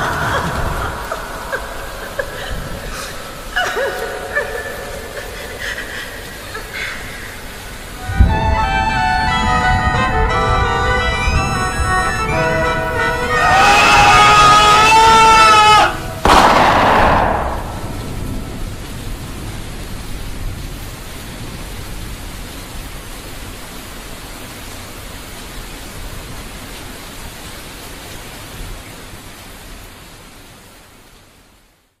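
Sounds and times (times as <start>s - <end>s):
low rumble: 0.0s - 12.0s, 16.3s - 20.0s
rain-like hiss: 0.0s - 32.0s
sudden loud burst: 16.2s - 19.1s.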